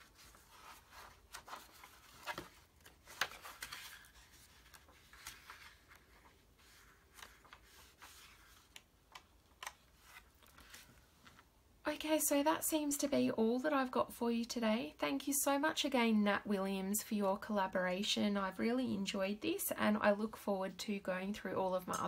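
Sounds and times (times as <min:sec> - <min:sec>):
paper pages rustling: 0:00.0 - 0:11.5.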